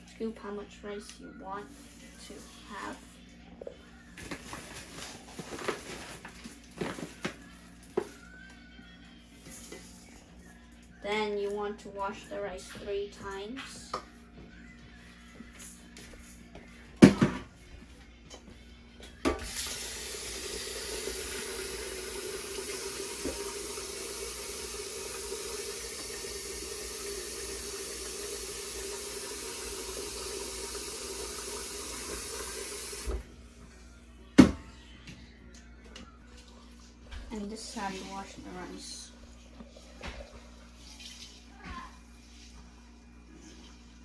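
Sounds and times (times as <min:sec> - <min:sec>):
faucet running into metal pot: 0:19.4 - 0:33.1.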